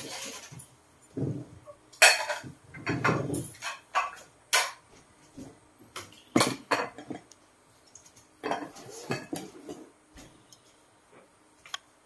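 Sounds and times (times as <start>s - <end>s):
plates and utensils clinking: 2.0s - 4.8s, 6.0s - 7.3s, 8.4s - 9.9s.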